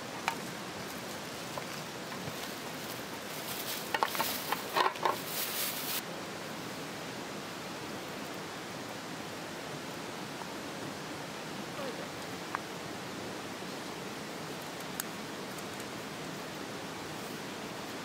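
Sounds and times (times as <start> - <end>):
steady background hiss: 0.0 - 18.0
plastic bag rustling: 0.8 - 6.0.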